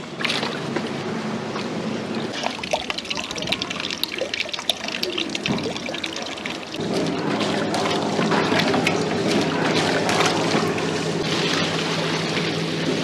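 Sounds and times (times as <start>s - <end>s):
small water splashes: 0.0s - 0.8s, 1.5s - 13.0s
water trickling and dripping: 2.3s - 12.7s.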